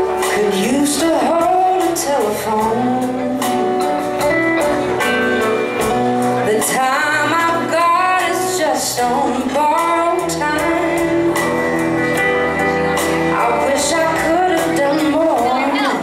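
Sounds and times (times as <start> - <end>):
woman singing lead: 0.0 - 4.4, 6.4 - 16.0
acoustic guitar: 0.0 - 16.0
drums with cymbal hits: 0.0 - 16.0
electric bass: 0.0 - 16.0
electric guitar: 0.0 - 16.0.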